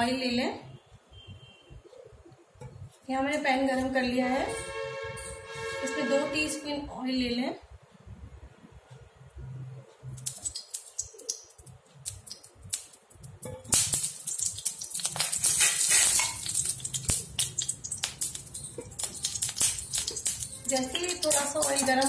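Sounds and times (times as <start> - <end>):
oil crackling and sizzling: 10.0 - 22.0.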